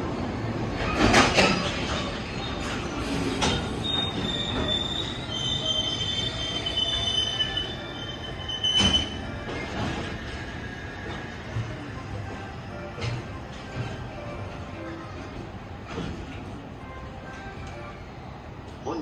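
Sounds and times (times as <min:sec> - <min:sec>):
loud train clunks: 0:00.0 - 0:17.9
freight train rolling past: 0:00.0 - 0:19.0
train wheels squealing: 0:00.8 - 0:11.5.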